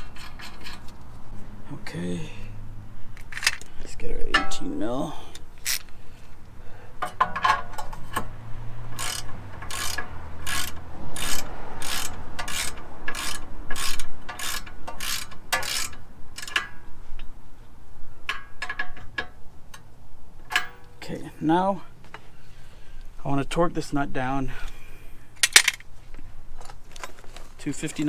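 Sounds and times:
ratchet wrench clicking: 5.6 - 5.9, 8.9 - 16.8.

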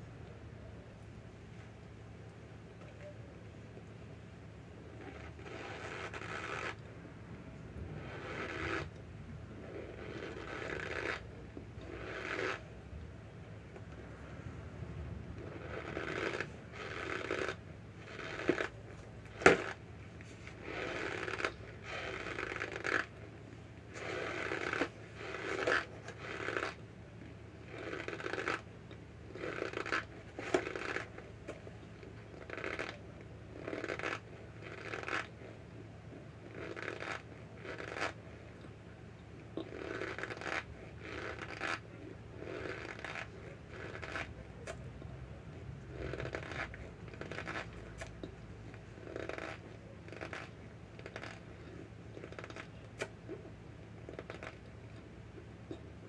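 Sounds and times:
soft crunching chews: 15.3 - 56.0.

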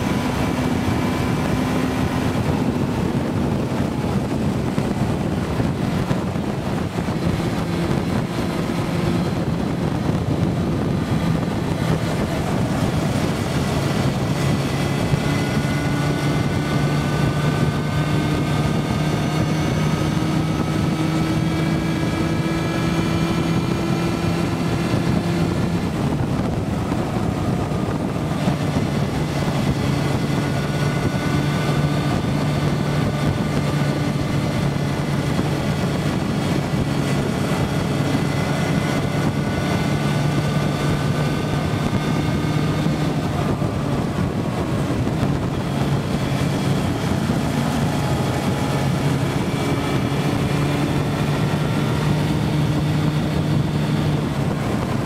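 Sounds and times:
motorcycle engine running: 0.0 - 55.0
wind rushing over microphone: 0.0 - 55.0.

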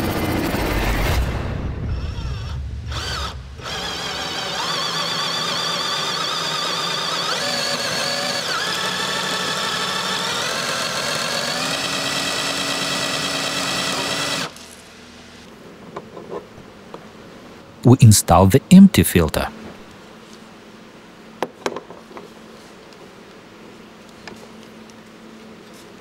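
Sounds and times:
drill motor whine: 1.9 - 14.6.

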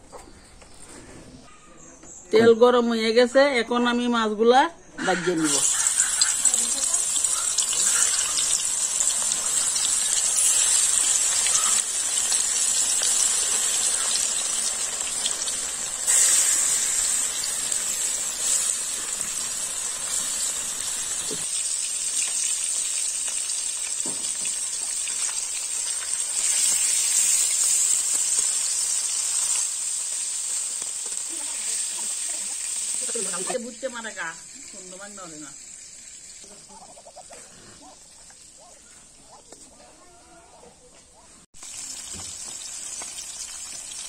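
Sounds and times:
fish sizzling in hot oil: 5.3 - 38.5, 41.6 - 44.0.

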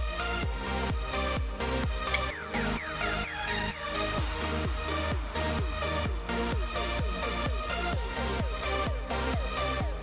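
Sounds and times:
electronic dance music: 0.0 - 10.0
kick drum: 4.2 - 10.0.

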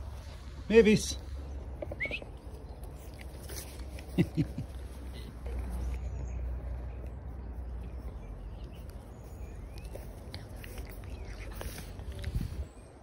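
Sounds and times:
clicks and rustles in grass: 0.0 - 7.1
wind rumble on microphone: 12.1 - 13.0.

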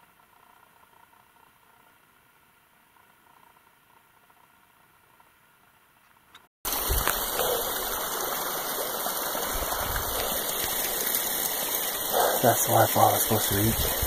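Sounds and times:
waterfall rushing: 6.7 - 14.0.

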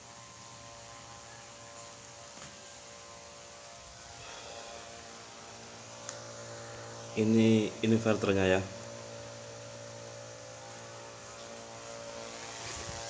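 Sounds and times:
inverter transformer hum: 0.0 - 13.0.

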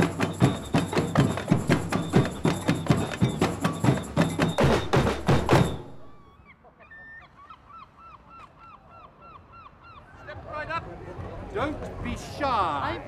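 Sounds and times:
percussion band drumming: 0.0 - 6.2.

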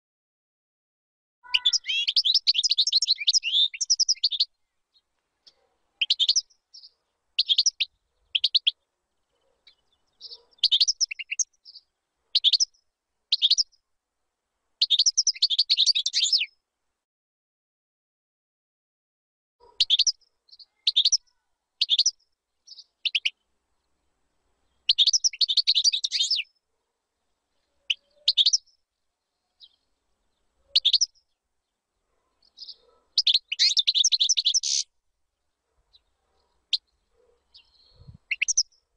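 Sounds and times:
goldfinch singing: 1.4 - 8.8, 9.6 - 12.7, 13.3 - 13.7, 14.8 - 16.5, 19.7 - 21.2, 21.8 - 23.4, 24.9 - 26.5, 27.9 - 28.7, 30.7 - 31.2, 32.4 - 34.9, 36.7 - 38.8.

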